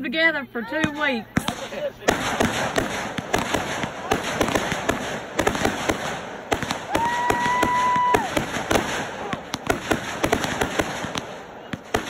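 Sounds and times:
fireworks crackling and popping: 0:00.8 - 0:12.0
whistling firework: 0:01.4 - 0:12.0.

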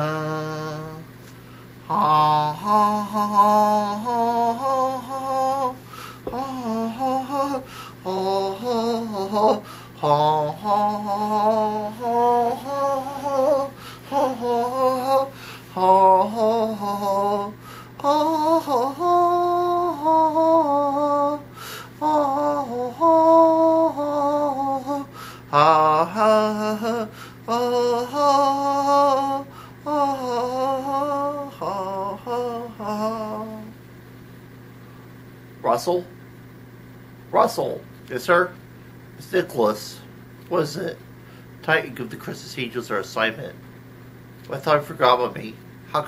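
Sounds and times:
person singing slow melody: 0:00.0 - 0:33.8
steady low hum: 0:00.0 - 0:46.0.

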